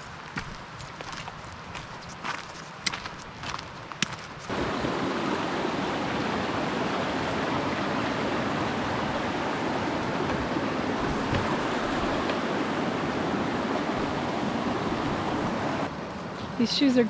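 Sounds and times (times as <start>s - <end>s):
creek water rushing: 4.4s - 17.0s.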